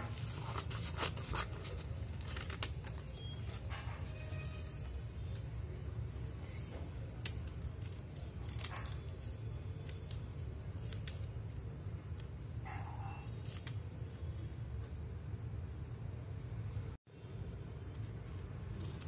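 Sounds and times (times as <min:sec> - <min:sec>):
paper tape crinkling: 0:00.0 - 0:05.7, 0:06.5 - 0:12.4, 0:13.2 - 0:13.9, 0:17.8 - 0:19.0.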